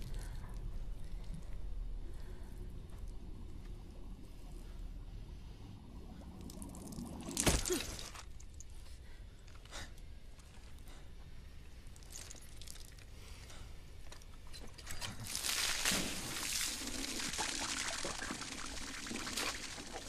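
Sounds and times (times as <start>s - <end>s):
low steady rumble: 0.0s - 15.3s.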